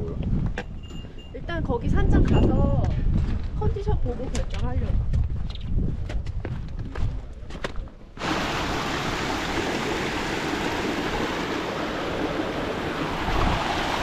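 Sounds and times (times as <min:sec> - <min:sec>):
stream rushing over rocks: 0:08.2 - 0:14.0.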